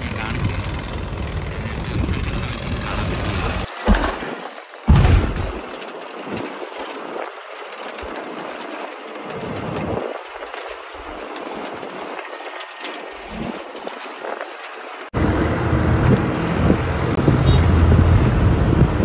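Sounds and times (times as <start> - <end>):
bus body rattling: 0.0 - 19.0
road and engine noise: 0.0 - 19.0
knocks and thumps from bumps: 3.8 - 7.2.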